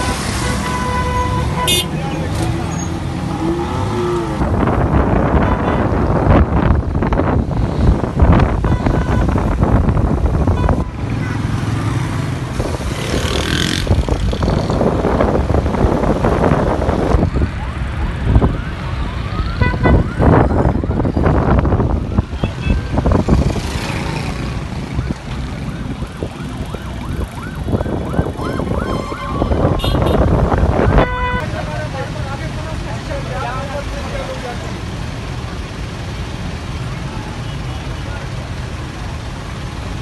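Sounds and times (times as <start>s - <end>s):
heavy road traffic: 0.0s - 40.0s
wind buffeting microphone: 4.1s - 10.9s, 12.3s - 31.5s
siren wailing: 17.4s - 21.3s, 24.8s - 29.8s.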